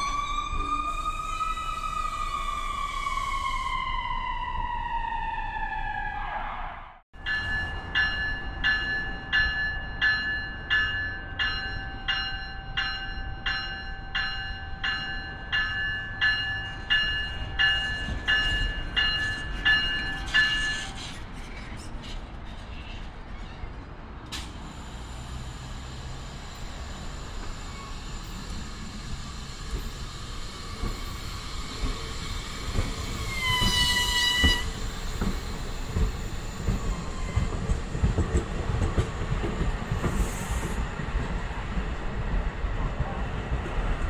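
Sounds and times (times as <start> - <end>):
commuter train rumble: 0.0 - 44.0
railway bell ringing: 7.2 - 21.1, 25.2 - 37.4.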